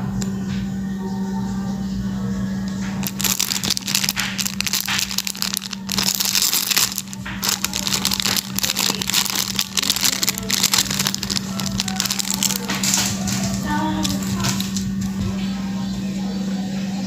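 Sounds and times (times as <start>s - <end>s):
steady low hum: 0.0s - 17.0s
plastic packaging crinkling: 3.0s - 15.1s.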